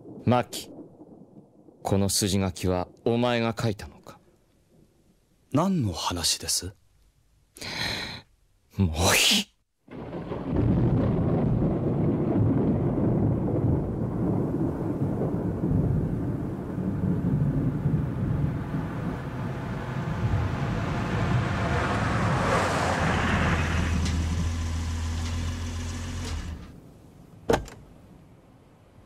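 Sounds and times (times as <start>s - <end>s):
car road and engine rumble: 19.4s - 28.0s
low engine hum: 20.1s - 26.8s.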